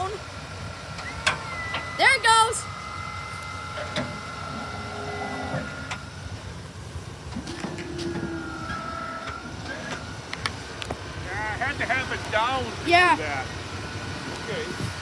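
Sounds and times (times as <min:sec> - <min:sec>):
truck engine idling: 0:00.0 - 0:15.0
hydraulic pump motor whining: 0:00.9 - 0:10.9.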